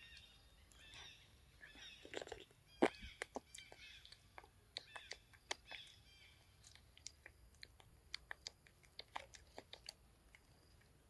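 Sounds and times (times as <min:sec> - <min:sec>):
monkey chewing food: 0:00.1 - 0:11.0.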